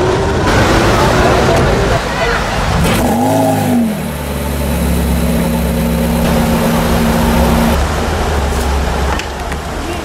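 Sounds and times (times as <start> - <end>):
car engine idling: 0.5 - 9.5.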